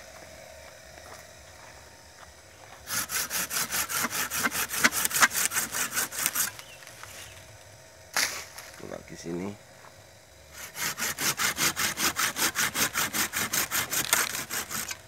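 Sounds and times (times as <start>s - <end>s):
hand saw cutting a stem: 2.8s - 6.7s, 10.6s - 15.0s.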